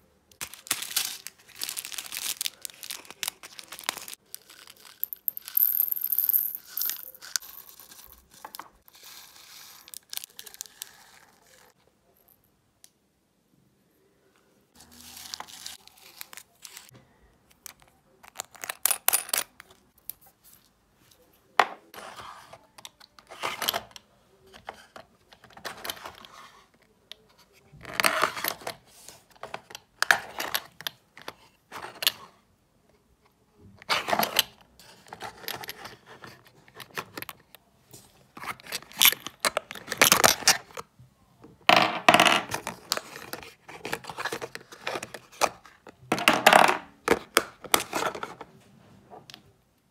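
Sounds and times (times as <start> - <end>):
plastic rustling: 0.4 - 4.8
small beads clattering into glass: 0.6 - 8.4.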